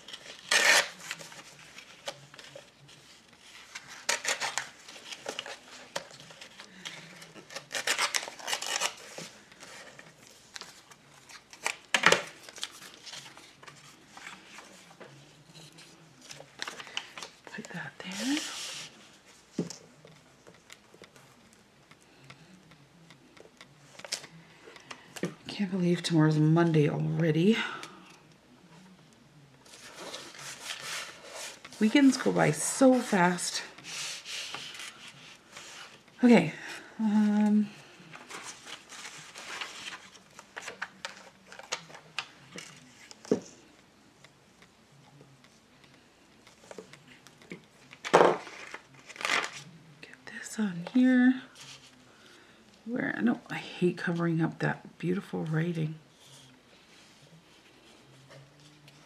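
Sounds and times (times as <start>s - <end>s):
paper and craft supplies handled: 0.0s - 21.4s, 29.6s - 36.4s, 37.0s - 43.8s, 44.6s - 49.8s.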